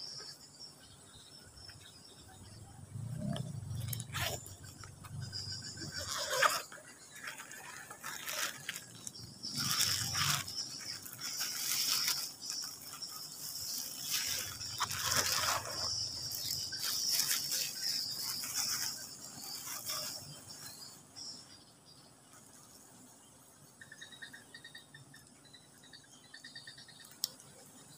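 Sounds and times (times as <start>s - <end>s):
high-pitched insect drone: 2.1s - 21.5s
leaves and branches rustling: 3.0s - 21.3s.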